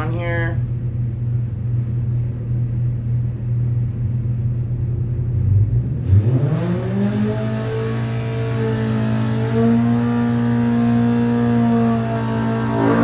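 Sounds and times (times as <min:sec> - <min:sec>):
engine idling and revving: 0:03.3 - 0:13.0.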